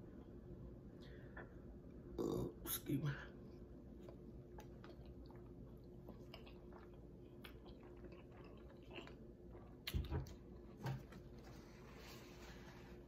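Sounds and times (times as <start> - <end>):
chewing with wet mouth clicks: 4.0 - 10.4.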